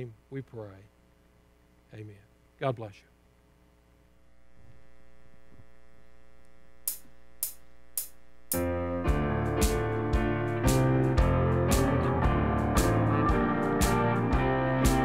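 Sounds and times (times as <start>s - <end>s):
band playing with electric guitar: 8.6s - 15.0s.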